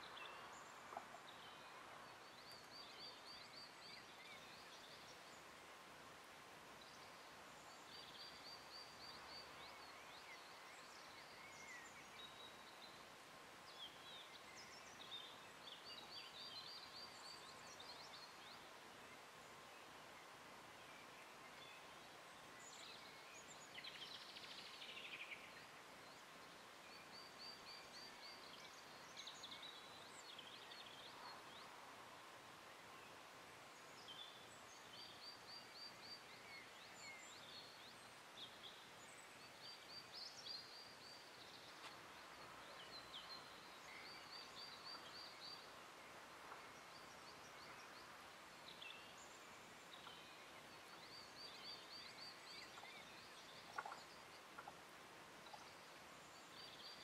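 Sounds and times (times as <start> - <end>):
songbird trills and chirps: 0.0 - 5.8, 6.7 - 57.0
faint steady tone: 0.0 - 57.0.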